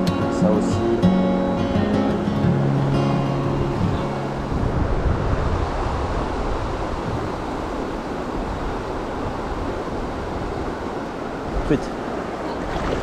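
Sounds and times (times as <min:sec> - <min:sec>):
acoustic guitar music: 0:00.0 - 0:05.2
river water rushing: 0:00.0 - 0:13.0.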